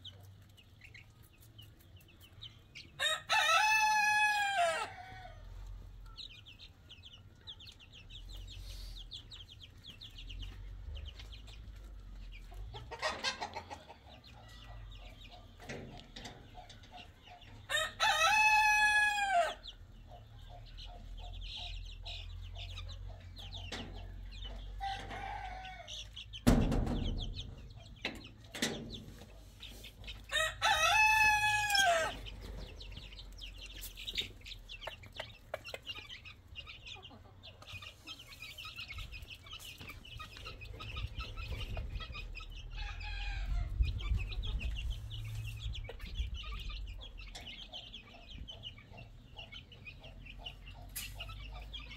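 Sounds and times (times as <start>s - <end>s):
chicks peeping: 0.0s - 51.9s
rooster crowing: 3.0s - 5.4s, 17.7s - 19.6s, 24.8s - 25.9s, 30.3s - 32.2s
sharp thump: 26.4s - 27.6s.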